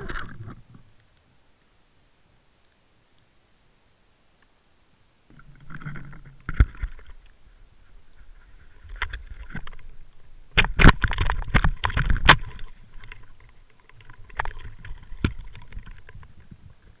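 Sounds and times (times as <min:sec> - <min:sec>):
water splashing and sloshing: 0:00.0 - 0:01.0, 0:05.3 - 0:17.0.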